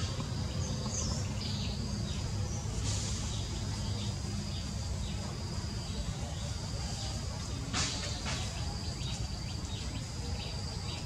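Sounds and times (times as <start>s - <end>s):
insects droning: 0.0s - 11.0s.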